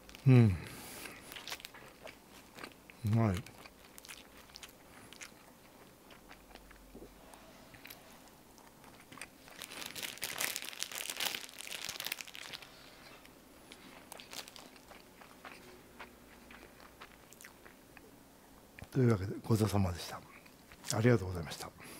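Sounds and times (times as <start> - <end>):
plastic wrapper crinkling: 1.2 - 2.1, 9.4 - 12.9, 13.7 - 15.0.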